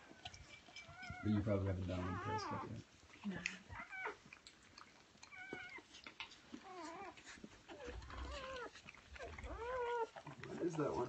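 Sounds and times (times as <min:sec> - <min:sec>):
puppies squeaking and whimpering: 0:00.0 - 0:11.0.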